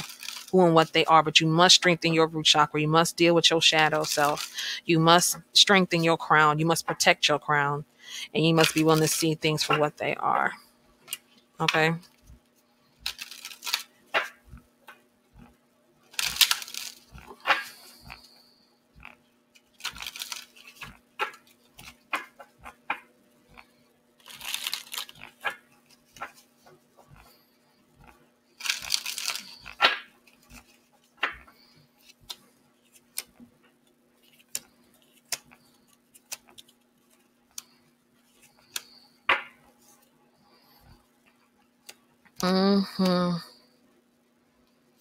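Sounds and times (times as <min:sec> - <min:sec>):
cards shuffling: 0:00.0 - 0:00.6, 0:03.9 - 0:04.6, 0:08.6 - 0:09.9, 0:13.0 - 0:15.0, 0:16.1 - 0:18.3, 0:19.6 - 0:23.1, 0:24.2 - 0:27.2, 0:28.6 - 0:33.5, 0:34.2 - 0:40.0
faint steady hum: 0:00.0 - 0:45.0.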